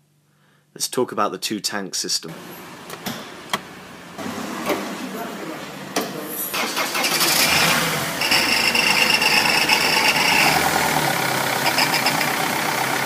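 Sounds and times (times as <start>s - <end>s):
diesel engine idling: 6.8s - 13.0s.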